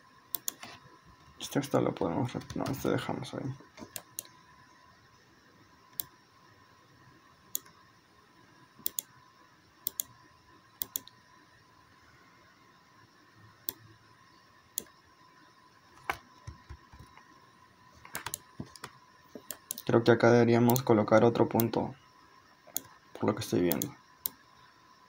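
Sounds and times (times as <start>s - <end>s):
faint steady hum: 0.0s - 25.0s
computer mouse clicking: 0.3s - 0.8s, 2.4s - 2.9s, 3.8s - 4.4s, 7.5s - 7.8s, 8.8s - 9.1s, 9.8s - 10.2s, 10.8s - 11.2s, 16.0s - 17.3s, 18.0s - 19.9s, 20.7s - 20.9s, 22.7s - 22.9s, 23.7s - 24.4s.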